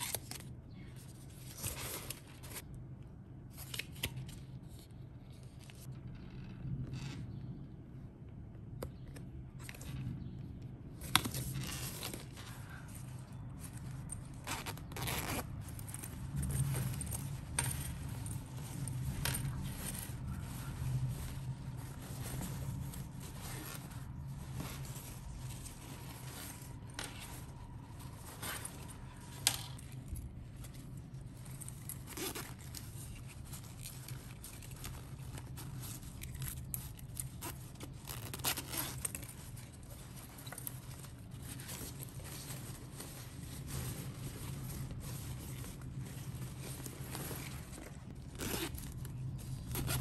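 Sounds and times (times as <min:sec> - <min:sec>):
fabric bags rustling and crinkling: 0:10.7 - 0:50.0.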